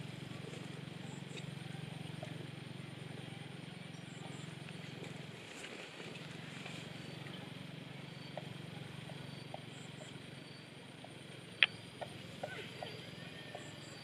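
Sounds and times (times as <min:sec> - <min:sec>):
faint short chirps and ticks: 0:11.6 - 0:14.0.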